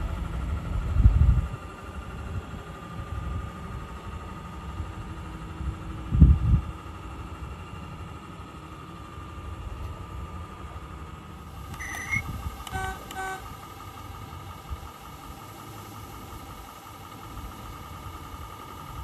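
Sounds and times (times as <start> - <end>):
steady whine and low rumble: 0.0 - 19.0
model locomotive horn toots: 11.7 - 13.6
brief squeak: 11.8 - 12.3.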